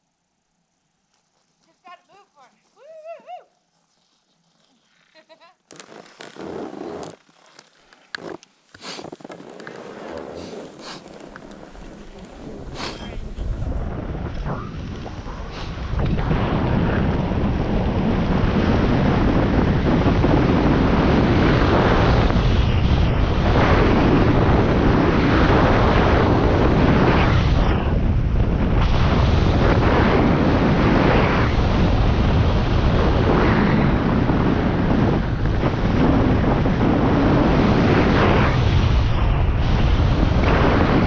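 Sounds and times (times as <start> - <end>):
wind buffeting microphone: 10.2 - 41.0.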